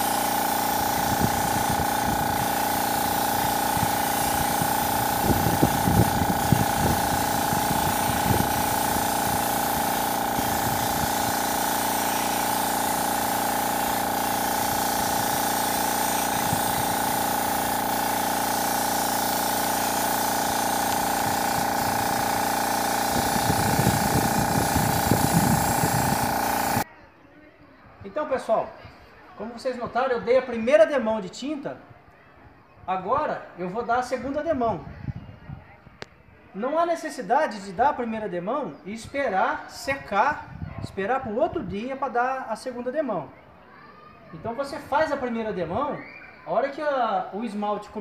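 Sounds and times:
spray gun hissing: 0.0s - 26.8s.

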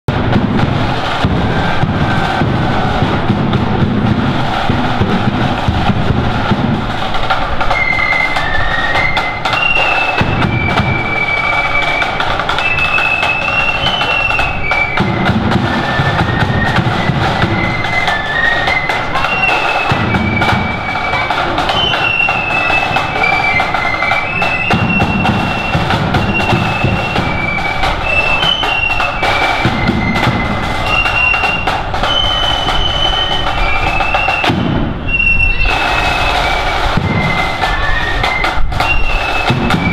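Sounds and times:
bass drum: 0.1s - 7.6s
snare drums: 0.1s - 39.9s
flutes playing a melody: 0.7s - 39.9s.

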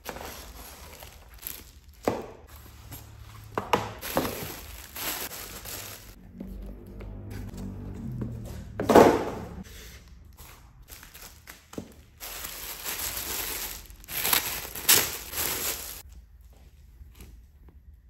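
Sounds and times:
plastic wrapping crinkling: 0.0s - 3.1s, 4.0s - 6.2s, 10.8s - 16.1s.

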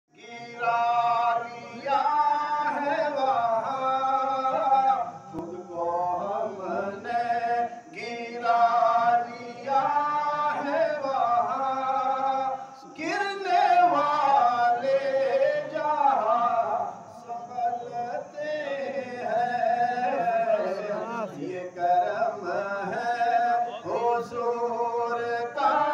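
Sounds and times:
man chanting into a microphone: 0.2s - 25.9s
breaths: 12.6s - 12.8s.

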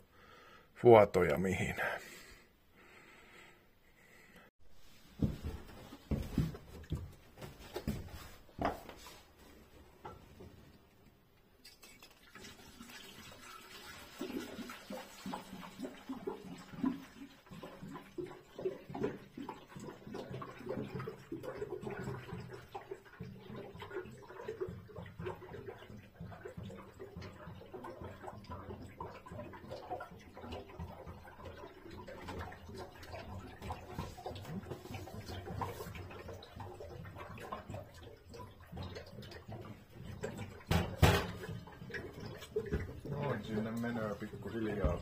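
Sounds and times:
liquid gurgling into a filler: 11.8s - 45.0s.

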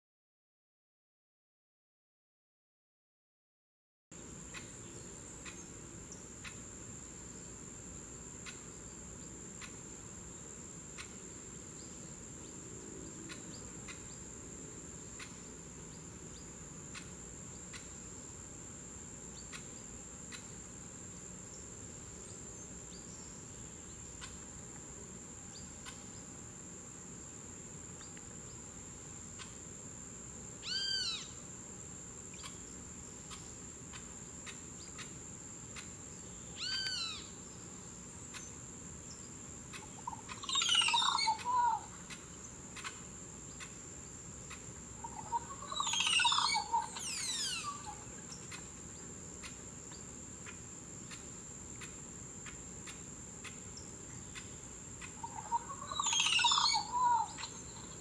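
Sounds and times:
high-pitched insect drone: 27.8s - 58.0s
bird calling: 30.6s - 31.4s, 36.5s - 37.4s, 39.7s - 43.0s, 44.5s - 48.8s, 54.3s - 58.0s.

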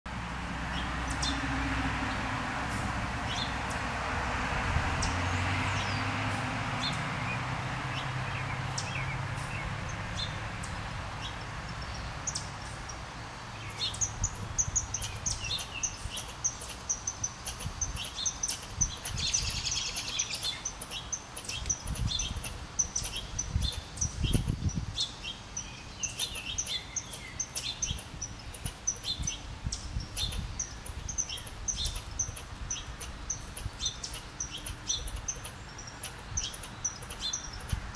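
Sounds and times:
squirrel chattering: 13.7s - 25.0s, 25.6s - 37.9s.

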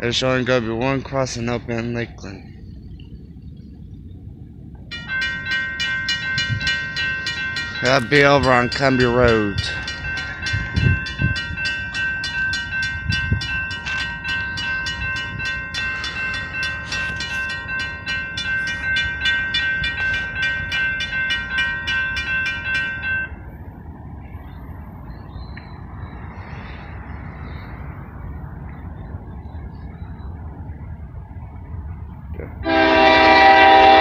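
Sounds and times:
railroad crossing bell ringing: 0.0s - 2.1s, 4.9s - 23.8s, 32.6s - 34.0s
freight train rumbling: 0.0s - 34.0s.

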